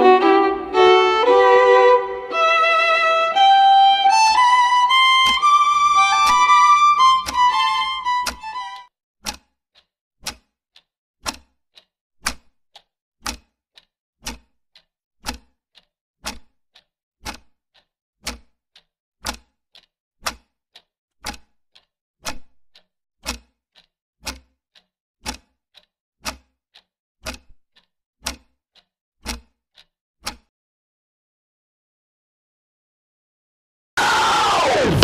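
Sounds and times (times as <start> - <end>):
clock ticking: 0.0 - 30.5.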